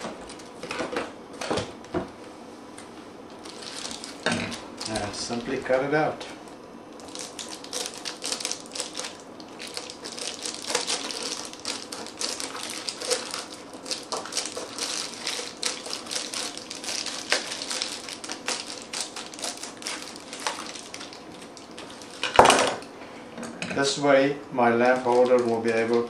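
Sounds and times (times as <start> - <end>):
foil crinkling: 3.4 - 5.6, 7.0 - 22.5, 24.8 - 26.0.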